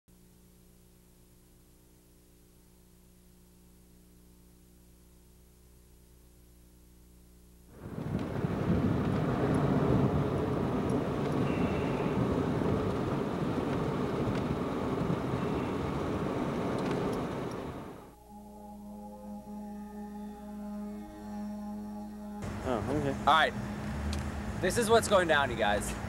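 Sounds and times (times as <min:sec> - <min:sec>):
faint hum: 0:00.1 - 0:26.0
loud rushing rumbling noise: 0:07.8 - 0:11.2, 0:22.4 - 0:26.0.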